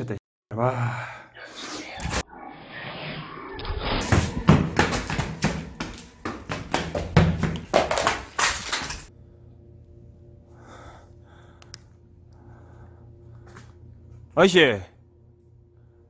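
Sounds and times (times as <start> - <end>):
low hum: 1.5 - 8.1, 9.0 - 16.0
small click: 11.6 - 11.9.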